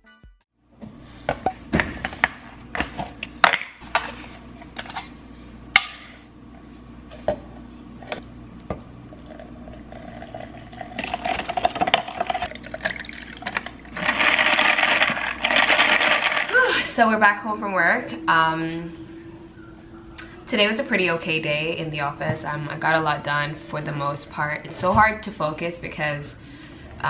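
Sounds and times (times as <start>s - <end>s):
liquid pouring over ice: 9.3s - 16.5s.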